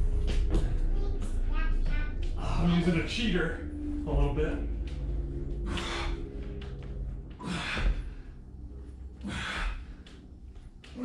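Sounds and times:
low steady hum: 0.0s - 11.0s
man breathing hard: 5.6s - 10.7s.

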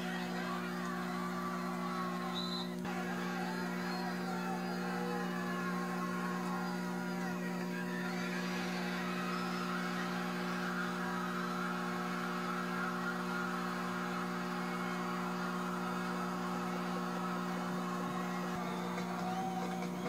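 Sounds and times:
steady electrical hum: 0.0s - 20.0s
videotape hiss: 0.0s - 20.0s.

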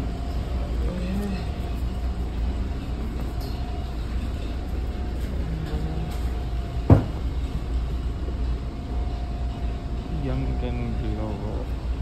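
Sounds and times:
subway car humming: 0.0s - 12.0s.

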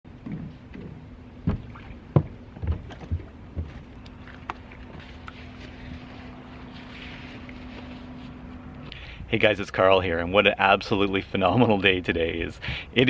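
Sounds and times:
steady low hum: 0.1s - 13.0s
footsteps on wooden boards: 0.2s - 5.1s.

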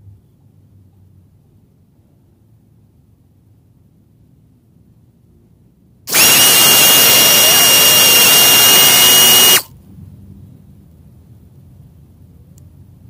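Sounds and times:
small motor whining: 6.1s - 9.7s.

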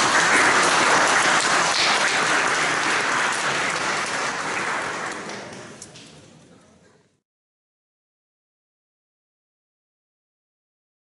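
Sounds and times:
audience applauding: 0.0s - 5.9s.

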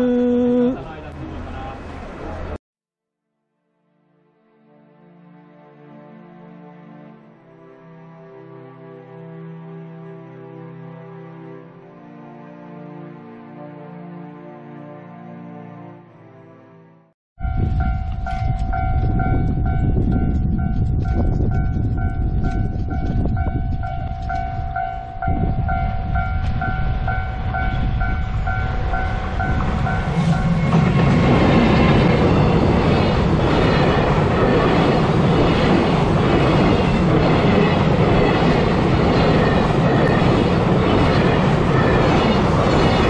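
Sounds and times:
electric locomotive passing: 0.7s - 2.6s, 17.4s - 43.0s
level-crossing bell ringing: 17.4s - 30.6s
train rumbling: 17.4s - 43.0s.

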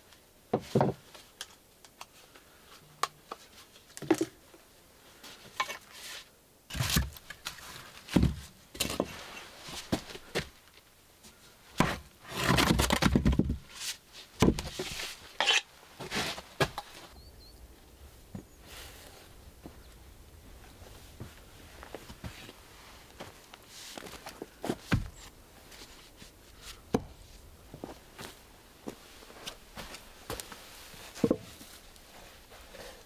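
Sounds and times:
objects being handled: 11.8s - 17.1s.

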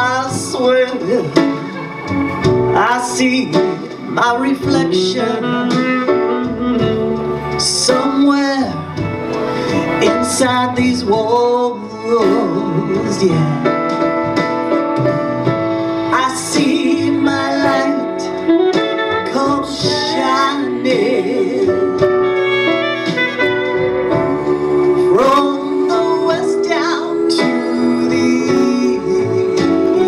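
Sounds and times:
instrumental backing music: 0.0s - 30.0s
woman singing into microphone: 19.3s - 22.1s, 24.2s - 30.0s.

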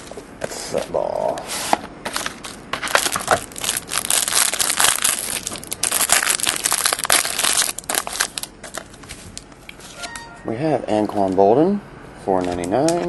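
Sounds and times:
plastic wrapper crinkling: 2.1s - 10.1s.

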